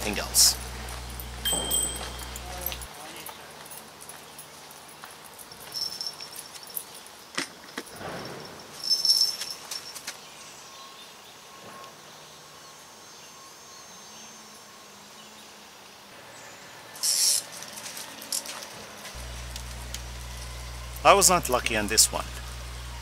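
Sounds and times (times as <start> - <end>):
small bell jingling: 0.0 - 10.2.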